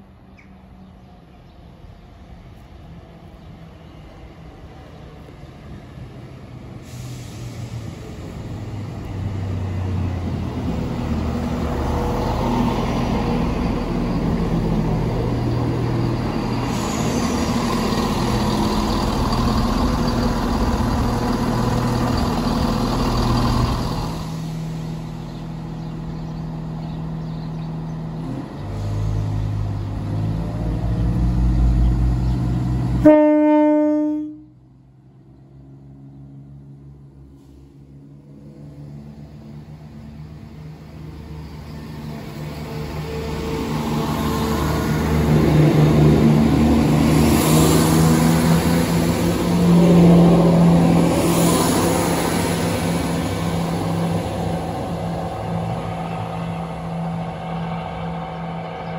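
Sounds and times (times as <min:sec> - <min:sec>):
diesel train rumbling: 0:00.0 - 0:58.9
train horn tone: 0:33.0 - 0:34.6.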